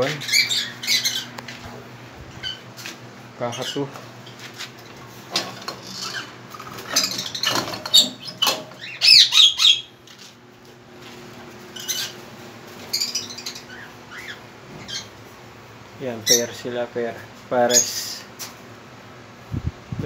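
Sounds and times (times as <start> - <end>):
parrots squawking: 0.0 - 1.6, 2.3 - 2.7, 3.4 - 3.9, 5.7 - 9.9, 11.7 - 15.2, 16.2 - 16.7, 17.6 - 18.3.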